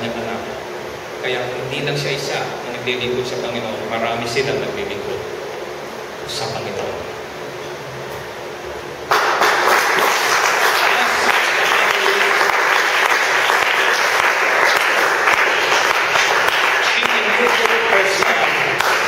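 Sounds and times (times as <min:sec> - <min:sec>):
congregation applauding: 0:09.1 - 0:19.0.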